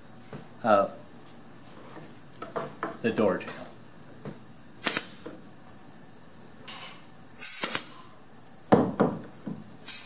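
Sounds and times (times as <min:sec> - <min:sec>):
knocks on wood: 0:08.7 - 0:09.6.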